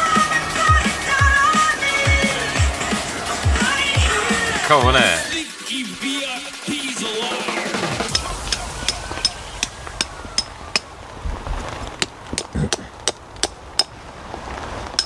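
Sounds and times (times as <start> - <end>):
low rumble: 8.1 - 14.4.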